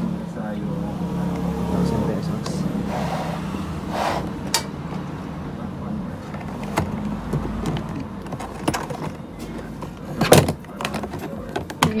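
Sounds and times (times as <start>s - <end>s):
plastic box clacking: 6.3s - 12.0s.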